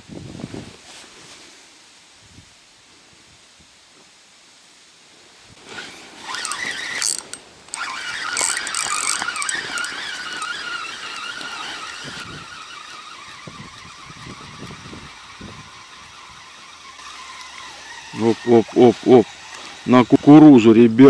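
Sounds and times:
reel rasps: 5.6 - 20.7
fishing reel whining: 5.7 - 20.5.

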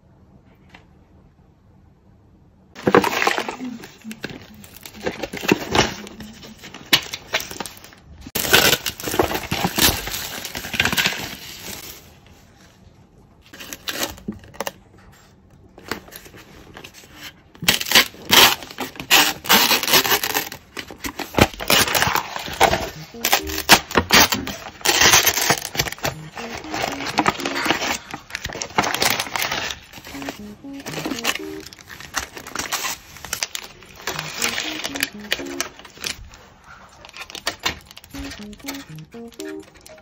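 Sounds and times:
crinkling plastic film: 2.8 - 12.3, 17.6 - 38.7.

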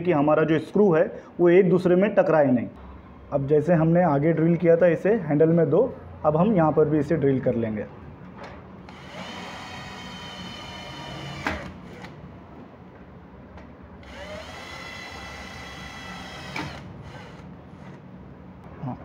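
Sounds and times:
cordless drill whine: 8.9 - 12.2, 14.0 - 17.5
drill click: 8.9 - 12.2, 14.0 - 17.9.

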